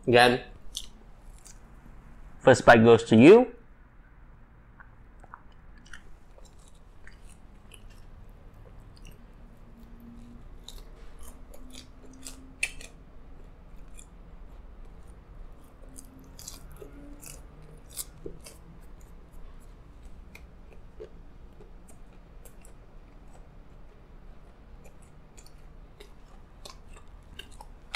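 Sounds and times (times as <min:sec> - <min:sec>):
crunchy chewing: 0:00.6 - 0:01.7, 0:04.8 - 0:27.9
mouth clicks: 0:04.7 - 0:06.1.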